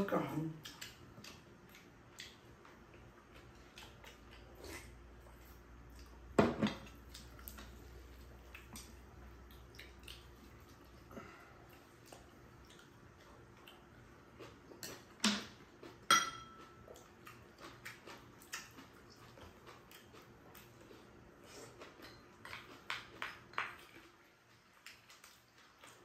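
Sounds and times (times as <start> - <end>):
chopsticks and spoons clicking on bowls: 16.1 - 16.8.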